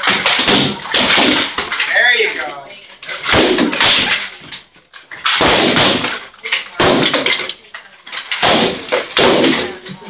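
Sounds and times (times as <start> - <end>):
swords striking shields: 0.0 - 2.0, 3.2 - 4.3, 5.2 - 7.5, 8.3 - 10.0.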